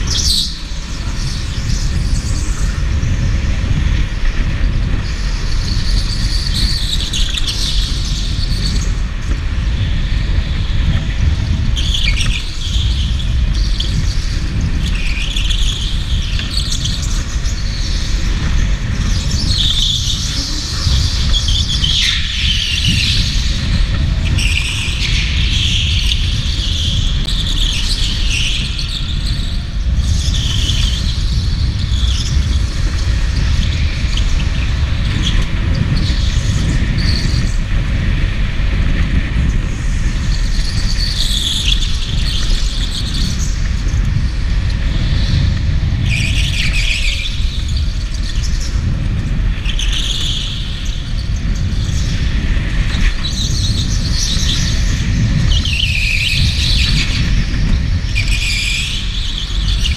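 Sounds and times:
go-kart tyres squealing: 0:00.0 - 0:38.2, 0:44.5 - 0:59.9
low rumble of moving kart: 0:00.0 - 0:59.9.

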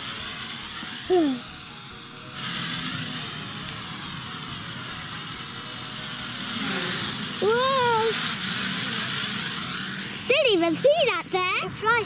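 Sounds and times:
background music: 0:00.0 - 0:08.3
drone propellers whirring: 0:00.0 - 0:12.0.

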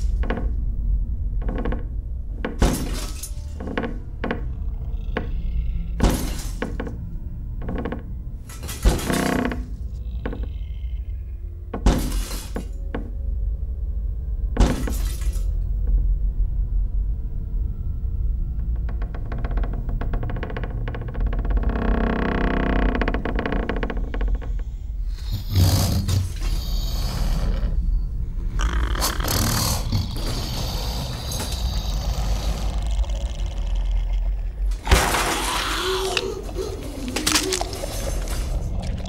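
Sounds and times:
steady low drone: 0:00.0 - 0:39.0
sharp shattering crashes: 0:34.8 - 0:35.8.

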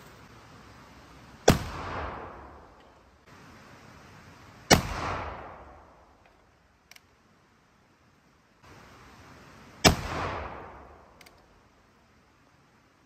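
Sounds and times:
rifle shots with echo: 0:01.4 - 0:02.8, 0:04.7 - 0:06.0, 0:09.8 - 0:11.2
faint click: 0:06.2 - 0:07.1, 0:11.2 - 0:11.5.

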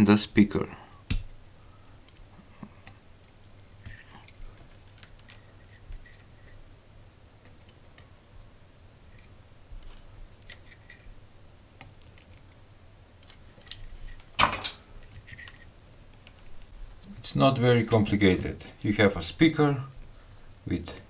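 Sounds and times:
steady low hum: 0:00.0 - 0:21.0
small clicks of handling wires: 0:00.9 - 0:06.3, 0:09.1 - 0:11.1, 0:11.8 - 0:12.6, 0:13.2 - 0:17.1.

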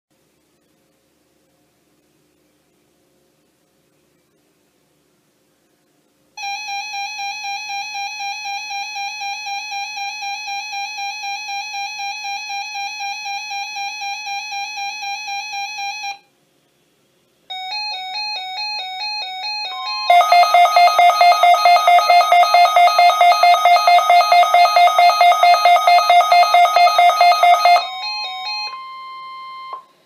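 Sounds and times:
rapidly pulsing alarm: 0:06.4 - 0:16.2, 0:17.5 - 0:29.8.

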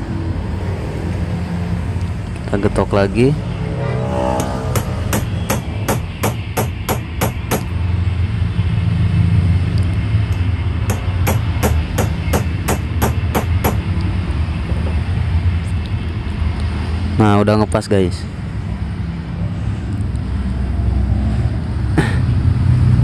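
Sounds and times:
steady low hum: 0:02.0 - 0:17.1
metal-on-metal knocks: 0:04.4 - 0:07.7, 0:10.3 - 0:13.9.

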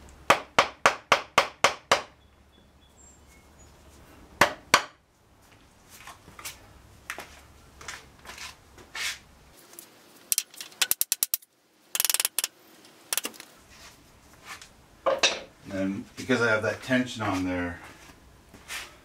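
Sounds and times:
buzzing rattle: 0:10.3 - 0:12.5.

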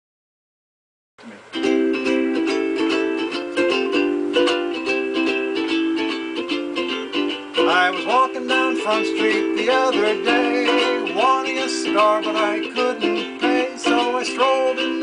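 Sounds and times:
ukulele plucking blues chords: 0:01.2 - 0:15.0.

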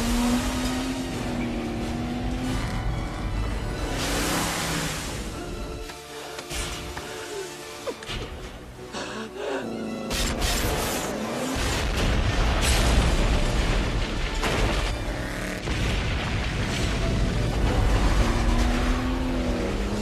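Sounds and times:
film music: 0:00.0 - 0:20.0
explosion with low rumble: 0:11.6 - 0:15.0, 0:15.6 - 0:18.6.

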